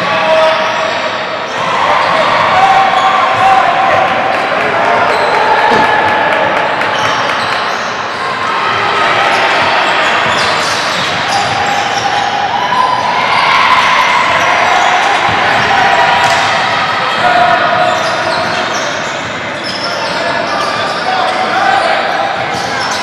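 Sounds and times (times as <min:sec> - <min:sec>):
sneakers squeaking: 0:05.0 - 0:06.1, 0:09.3 - 0:12.2, 0:17.8 - 0:21.5.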